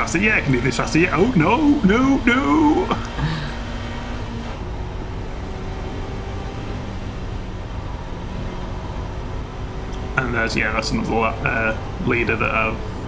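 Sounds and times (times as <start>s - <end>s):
race car engine: 0.0s - 13.0s
road noise: 0.0s - 13.0s.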